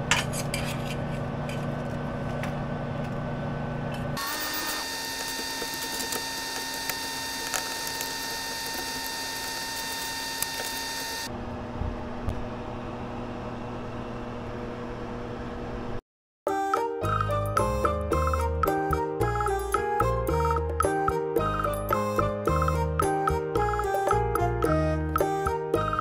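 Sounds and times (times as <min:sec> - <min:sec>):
machine hum with high whine: 0:00.0 - 0:16.0.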